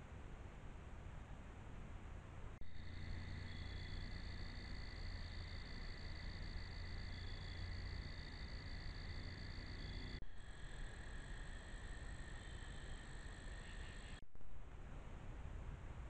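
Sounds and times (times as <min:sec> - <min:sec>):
low steady hum: 0:00.0 - 0:16.0
crickets trilling: 0:02.6 - 0:14.2.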